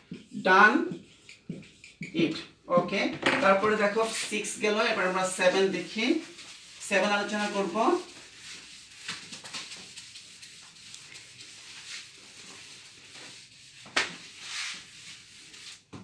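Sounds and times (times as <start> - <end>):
paper rustle: 7.4 - 12.8.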